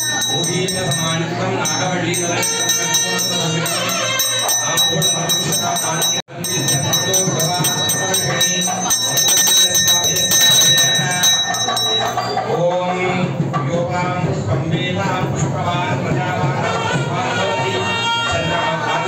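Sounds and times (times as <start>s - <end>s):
brass hand bell ringing: 0.0s - 12.6s
music: 0.0s - 19.0s
voices: 0.0s - 19.0s.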